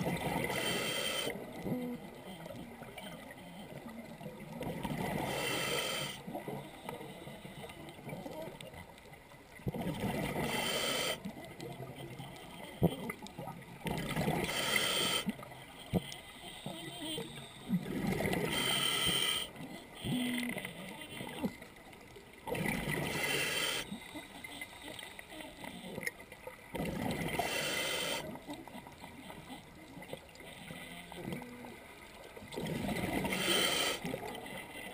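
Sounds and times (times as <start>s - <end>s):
regulator inhale hiss: 0.4s - 1.4s, 5.2s - 6.2s, 10.4s - 11.3s, 14.4s - 15.4s, 18.3s - 19.6s, 23.1s - 24.0s, 27.3s - 28.3s, 33.2s - 34.2s.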